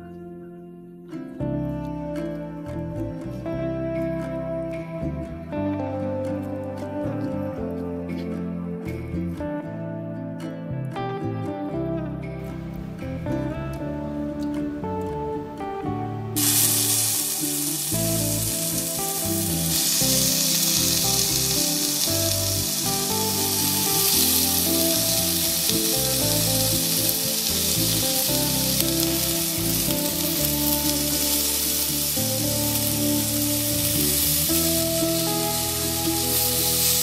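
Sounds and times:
quiet background music: 0.0 - 37.0
chicken sizzling on grill pan: 16.4 - 37.0.

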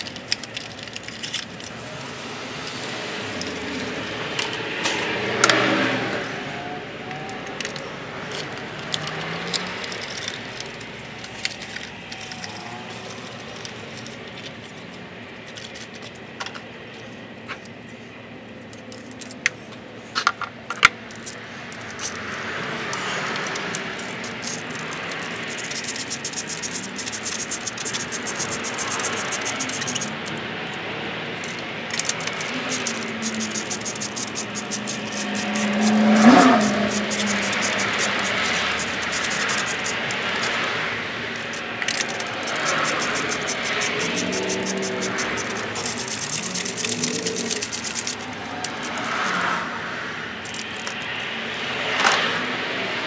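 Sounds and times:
hand ratchet clicking rapidly: 0.0 - 1.7, 7.2 - 12.6, 22.9 - 30.4, 31.4 - 40.7, 41.4 - 49.5, 50.4 - 51.1
humming tone: 31.4 - 40.5.

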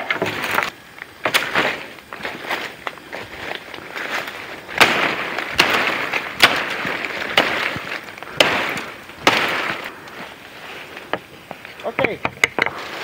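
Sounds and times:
rustle of leaves and brush: 0.0 - 13.0
blade chopping wood: 4.8 - 9.8.

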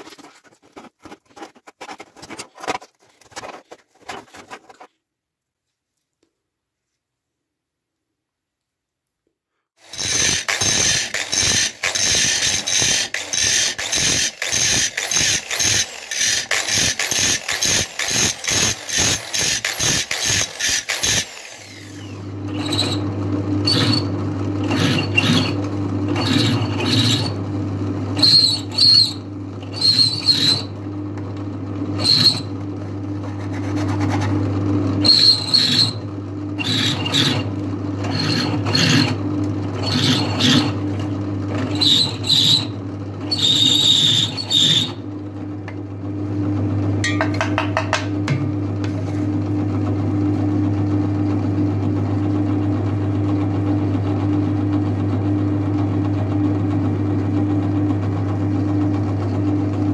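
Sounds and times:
steel being hand-filed: 9.8 - 23.0, 23.6 - 27.4, 28.2 - 30.7, 32.0 - 32.5, 33.2 - 34.4, 35.0 - 39.2, 39.8 - 40.9, 41.6 - 45.0
drill bit squealing in steel: 9.9 - 27.4, 28.2 - 30.8, 32.0 - 32.6, 35.0 - 39.2, 39.8 - 40.8, 41.6 - 45.0
drill press motor humming: 9.9 - 27.5, 28.1 - 30.9, 35.0 - 45.1.

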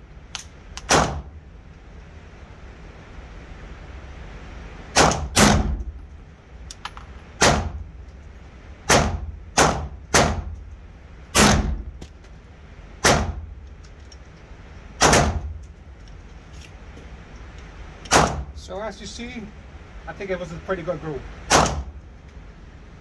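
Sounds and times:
pistol shots echoing indoors: 0.9 - 1.3, 4.9 - 5.8, 8.9 - 10.5, 11.4 - 11.9, 15.0 - 15.5, 21.5 - 21.9.

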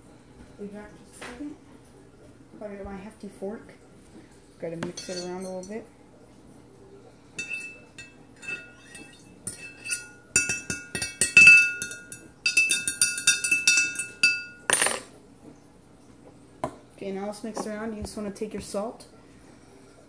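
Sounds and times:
fork clinking in glass jar: 5.0 - 5.8, 7.4 - 15.1.

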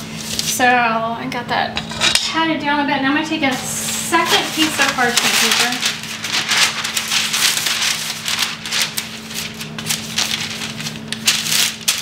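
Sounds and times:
parchment paper crinkling: 3.5 - 12.0.

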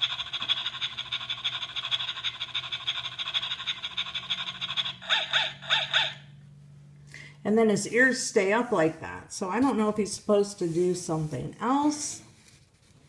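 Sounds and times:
toy dog electronic pulsing noise: 0.0 - 6.3
toy dog yaps: 0.0 - 6.3
low steady hum: 0.0 - 13.0.

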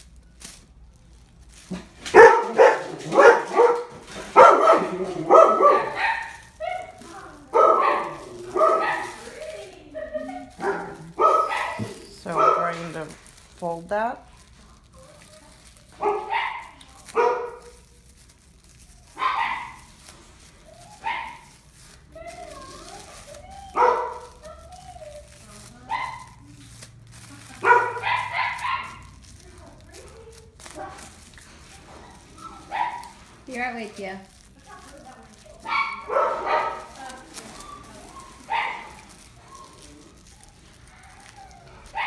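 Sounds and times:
dog barking: 2.1 - 9.4, 10.2 - 13.2, 15.9 - 17.9, 19.1 - 20.0, 20.9 - 21.6, 23.7 - 24.5, 25.9 - 26.4, 27.6 - 29.4, 30.7 - 33.3, 35.6 - 37.3, 38.2 - 39.8, 40.9 - 42.0.

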